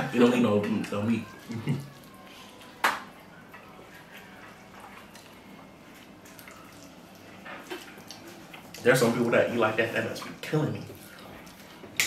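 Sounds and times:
wet chewing: 3.8s - 9.1s, 10.1s - 12.0s.

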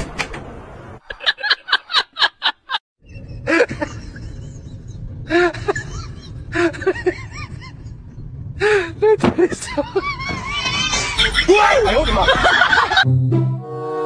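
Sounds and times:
person laughing: 3.4s - 8.0s, 9.6s - 13.1s.

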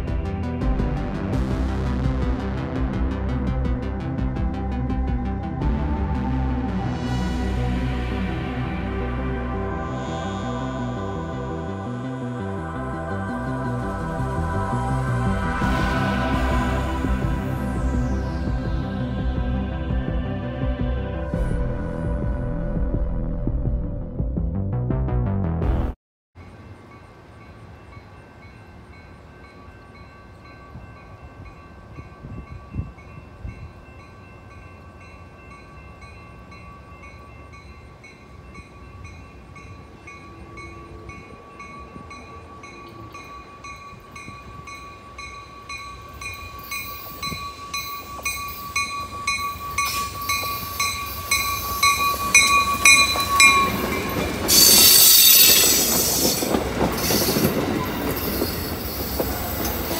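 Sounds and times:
passenger train approaching: 0.0s - 23.5s, 26.4s - 59.9s
high steady ringing tone: 9.7s - 20.2s, 26.4s - 59.9s
regular pulse: 12.1s - 23.9s
train wheels on rails: 14.0s - 20.3s, 26.4s - 59.9s.

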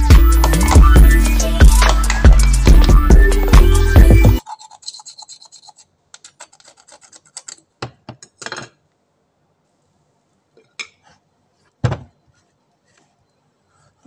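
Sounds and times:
knife scraping shell: 4.4s - 7.6s
thump on cutting board: 11.8s - 12.1s.

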